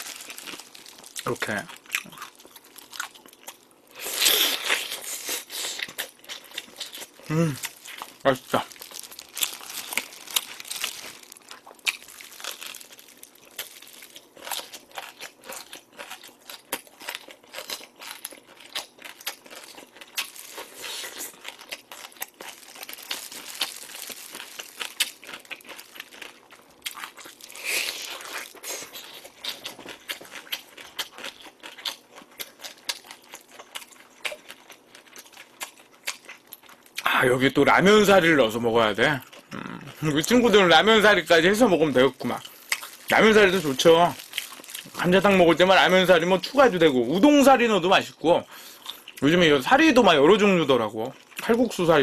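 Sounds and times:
plastic glove crinkling: 0.0 - 3.2, 6.3 - 15.4, 19.8 - 29.6, 40.1 - 46.8
chewing and crunching meat: 0.0 - 37.1, 39.0 - 47.2, 48.6 - 52.0.

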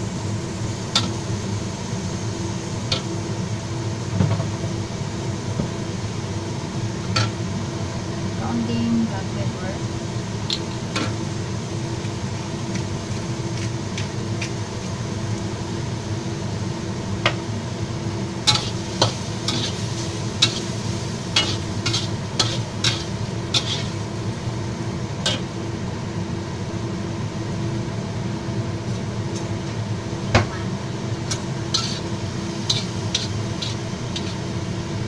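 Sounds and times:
food sizzling in a wok: 0.0 - 35.0
metal spatula scraping wok: 18.5 - 24.1, 31.3 - 34.6.

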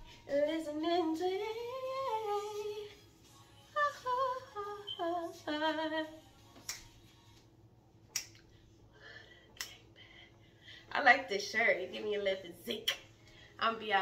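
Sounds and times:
woman singing: 0.0 - 7.2.

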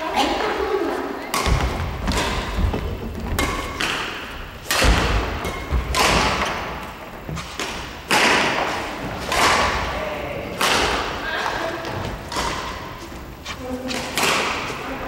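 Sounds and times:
rackets striking shuttlecock: 1.3 - 15.0
footsteps on wooden floor: 1.5 - 3.7.

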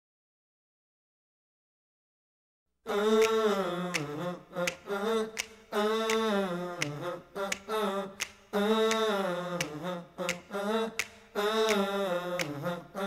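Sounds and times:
person singing long notes: 2.9 - 13.0
finger snaps: 3.2 - 12.8.

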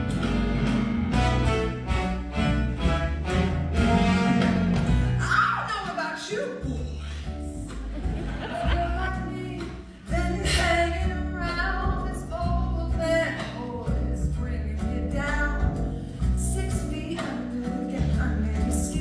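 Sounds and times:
live band accompaniment: 0.0 - 19.0
woman singing: 8.6 - 19.0.

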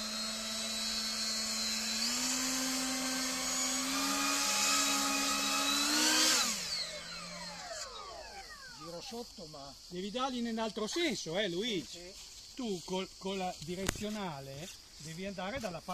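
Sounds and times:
ducted fans whining: 0.0 - 9.3.

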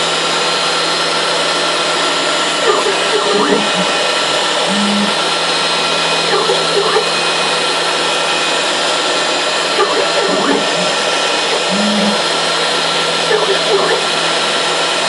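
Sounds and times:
router spindle whine: 0.0 - 15.0
axis drive tonal notes: 2.6 - 5.5, 6.2 - 7.2, 9.7 - 14.3.

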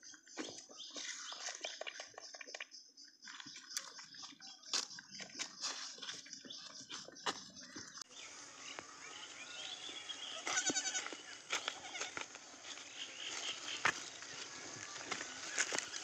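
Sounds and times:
goat bleating: 10.2 - 12.3.

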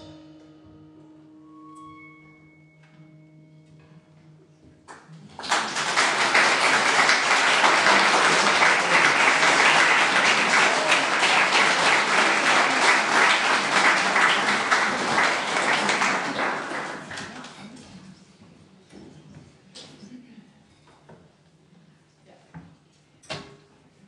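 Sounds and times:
audience applauding: 4.9 - 17.9.

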